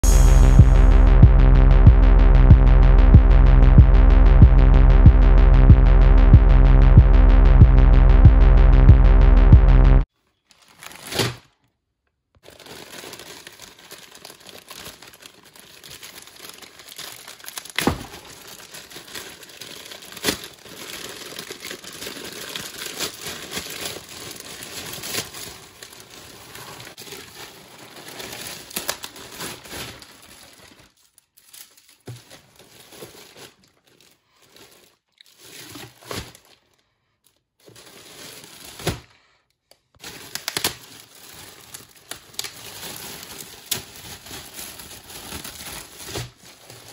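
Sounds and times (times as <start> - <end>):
plastic bag crinkling: 10.2 - 11.7, 12.4 - 46.9
plastic mailer bag tearing: 10.5 - 11.6, 12.4 - 36.7, 37.6 - 39.2, 40.0 - 46.9.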